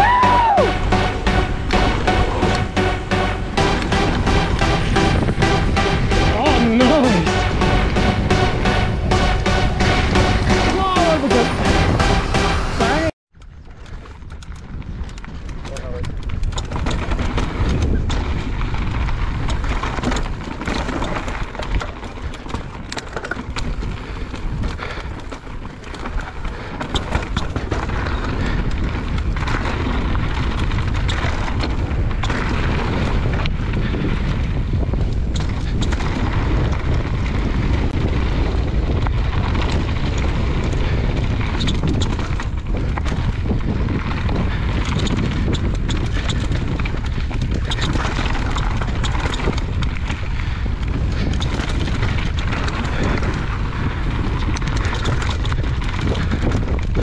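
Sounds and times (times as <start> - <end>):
wind buffeting microphone: 0.0 - 2.8, 13.4 - 57.0
bike knocks and rattles: 12.9 - 57.0.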